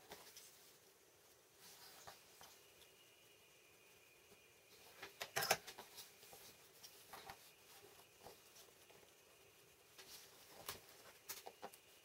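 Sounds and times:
wire clicks and rustles: 4.7s - 12.0s.

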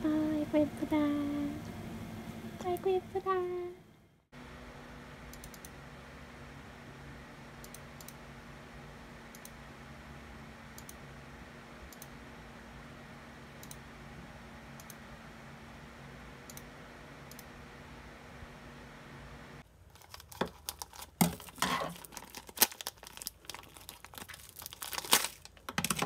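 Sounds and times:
low electrical hum: 0.0s - 26.0s
computer mouse clicks: 5.3s - 5.7s, 7.6s - 8.2s, 9.3s - 9.6s, 10.8s - 11.0s, 11.9s - 12.1s, 13.6s - 13.8s, 14.8s - 15.0s.

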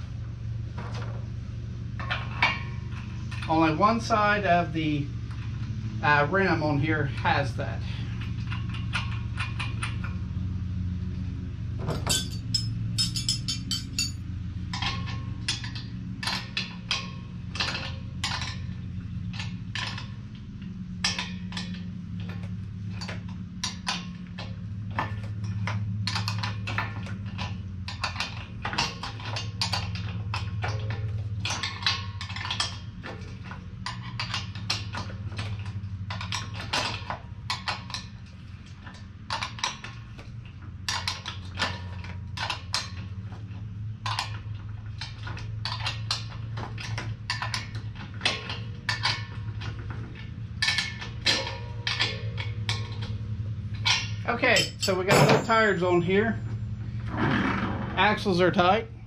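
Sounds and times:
low steady hum: 0.0s - 59.0s
metal tools clinking and knocking: 11.8s - 20.1s, 25.0s - 38.2s, 45.0s - 56.4s.

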